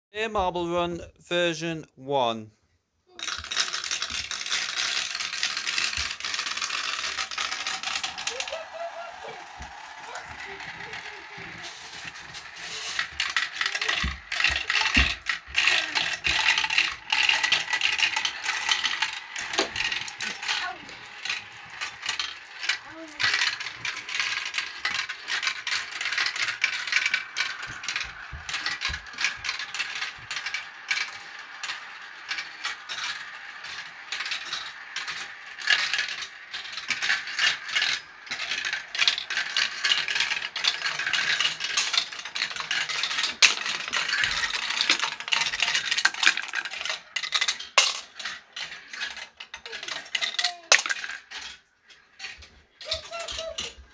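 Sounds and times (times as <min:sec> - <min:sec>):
marbles clattering down plastic tracks: 0:03.1 - 0:53.9.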